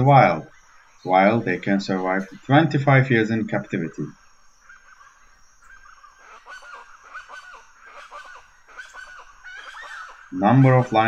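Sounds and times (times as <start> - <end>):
short animal calls: 4.1 - 11.0.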